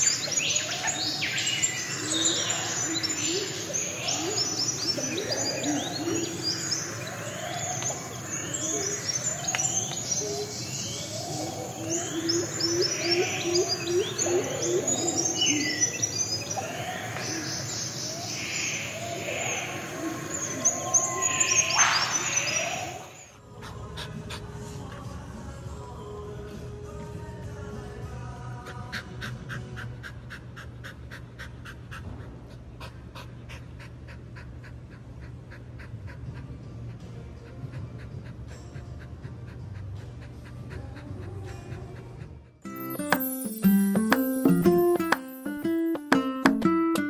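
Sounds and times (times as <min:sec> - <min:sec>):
birds chirping and whistling: 0:00.0 - 0:24.2, 0:42.6 - 0:46.0
bird cooing: 0:00.0 - 0:24.6.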